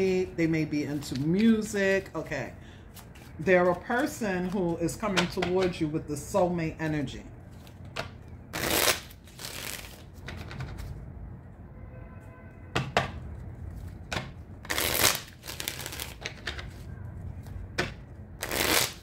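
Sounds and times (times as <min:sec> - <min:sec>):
cards being shuffled: 0:00.9 - 0:01.8, 0:02.9 - 0:05.0, 0:07.5 - 0:11.0, 0:13.6 - 0:19.0.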